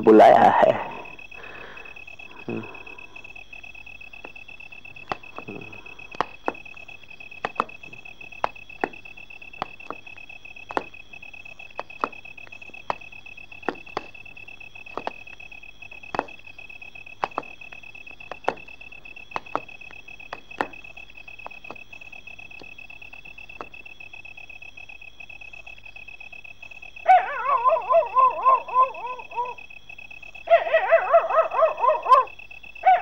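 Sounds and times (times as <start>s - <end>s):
high-pitched whine: 0.0s - 23.9s.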